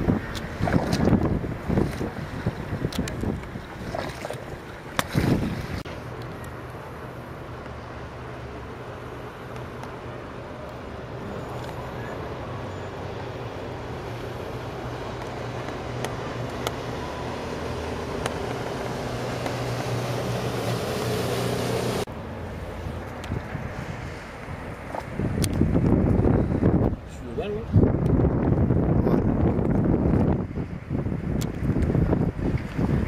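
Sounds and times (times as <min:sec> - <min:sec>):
engine running: 0:03.8 - 0:26.8.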